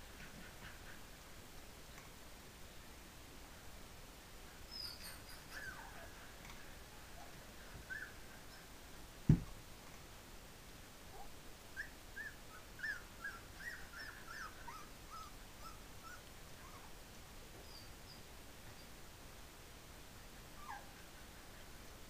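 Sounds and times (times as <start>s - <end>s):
thump: 9.3s - 9.6s
puppies whimpering: 12.2s - 16.9s.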